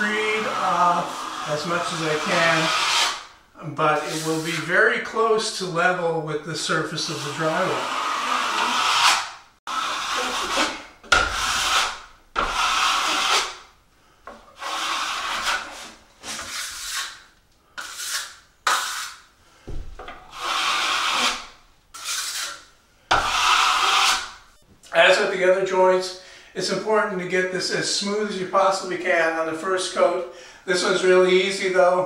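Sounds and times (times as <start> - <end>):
trowel scraping compound: 0.0 - 3.3, 4.0 - 4.7, 7.0 - 13.6, 14.6 - 19.3, 20.3 - 24.4.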